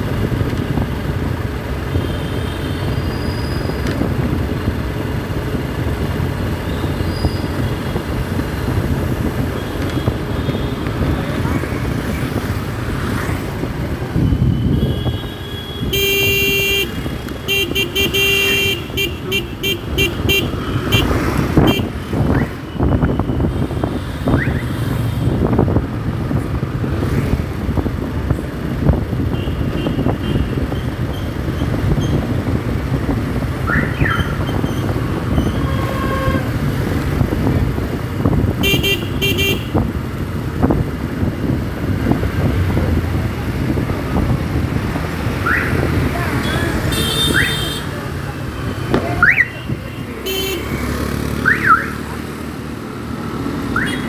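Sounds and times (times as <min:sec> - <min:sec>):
motorcycle engine and road noise: 0:00.0 - 0:54.0
traffic horns beeping: 0:01.8 - 0:03.8, 0:09.3 - 0:11.4, 0:14.0 - 0:25.4, 0:29.2 - 0:32.2, 0:33.6 - 0:37.0, 0:38.5 - 0:40.0, 0:45.3 - 0:52.2, 0:53.6 - 0:54.0.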